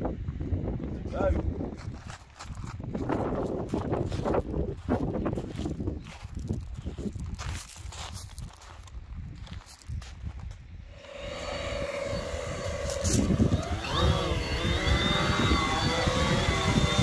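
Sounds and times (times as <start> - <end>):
drone rotors whining: 10.9 - 17.0.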